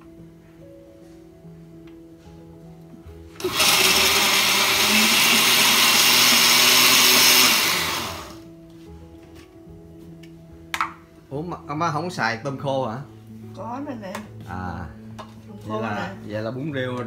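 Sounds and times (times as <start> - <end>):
blender motor running: 3.4 - 8.4.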